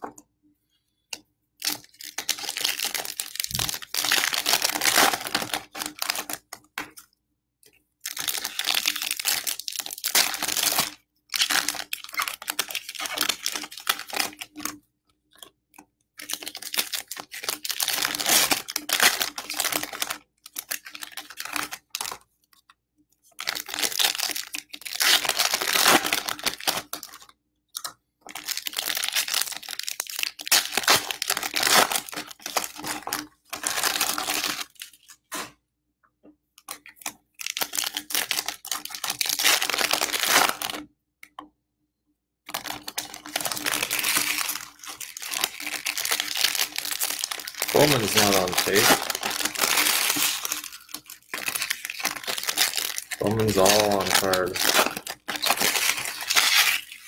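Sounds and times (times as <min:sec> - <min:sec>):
wrappers tearing and crinkling: 0:01.6 - 0:06.5, 0:08.1 - 0:14.8, 0:16.2 - 0:22.2, 0:23.4 - 0:27.3, 0:28.3 - 0:35.5, 0:36.7 - 0:40.8, 0:42.5 - 0:57.0.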